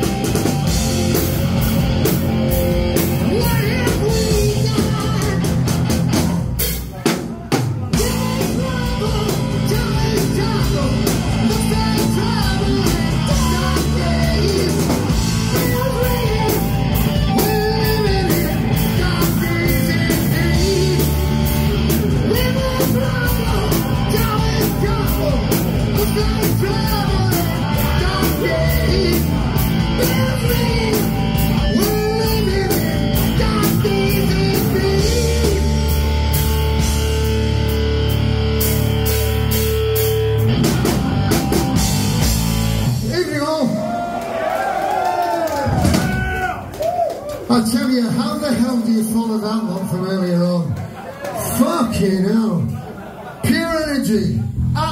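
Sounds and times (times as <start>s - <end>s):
heavy metal band playing: 0.0s - 44.2s, 44.9s - 46.7s, 53.4s - 54.9s
person singing: 3.2s - 5.5s, 7.9s - 36.1s.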